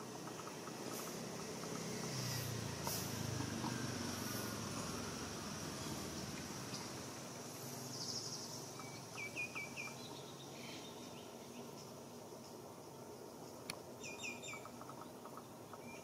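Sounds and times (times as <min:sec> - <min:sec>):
insect drone: 0:00.0 - 0:16.0
small bird chirping: 0:05.7 - 0:16.0.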